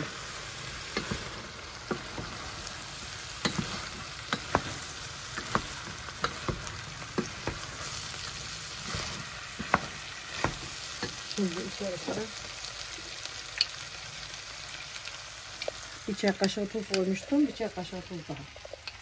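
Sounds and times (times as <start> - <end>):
food sizzling in a pot: 0.0 - 19.0.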